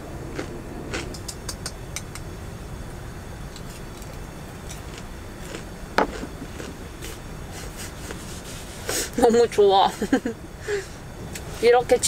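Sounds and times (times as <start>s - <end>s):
steady low rumble: 0.0s - 12.0s
fried chicken crunching: 0.3s - 1.7s, 3.6s - 7.2s.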